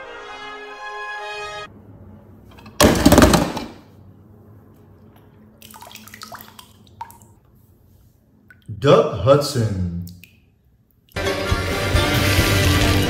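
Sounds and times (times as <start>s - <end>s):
water sloshing: 5.0s - 7.4s.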